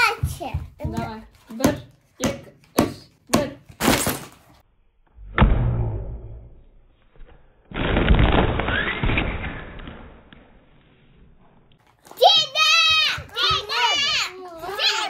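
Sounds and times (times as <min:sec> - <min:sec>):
deep booms: 0:05.2 - 0:06.6.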